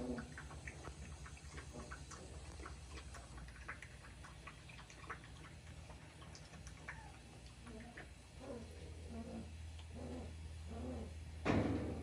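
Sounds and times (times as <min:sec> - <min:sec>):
puppies' small clicks and ticks: 0:00.0 - 0:08.9, 0:09.6 - 0:10.0
steady low hum: 0:00.0 - 0:12.0.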